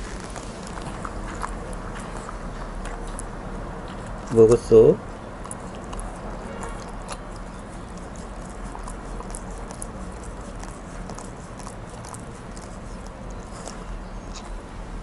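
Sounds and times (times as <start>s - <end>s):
dog licking a glass bowl: 5.4s - 14.3s.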